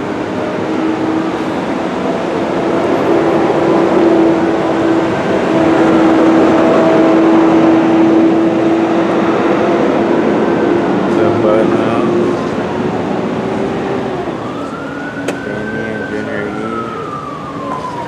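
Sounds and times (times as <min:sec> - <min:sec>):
vehicle engine hum: 0:00.0 - 0:18.0.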